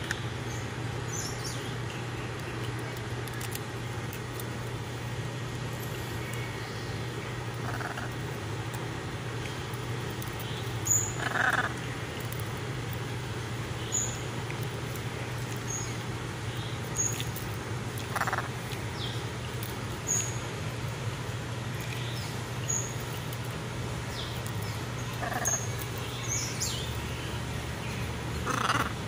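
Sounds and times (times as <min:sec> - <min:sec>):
steady low hum: 0:00.0 - 0:29.0
macaws croaking: 0:07.4 - 0:08.4, 0:10.8 - 0:12.0, 0:18.0 - 0:18.8, 0:24.5 - 0:26.8, 0:28.3 - 0:29.0.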